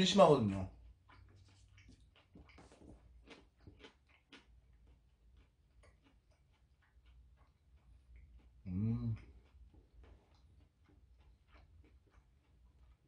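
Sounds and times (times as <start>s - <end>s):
man chewing: 0.6s - 13.0s.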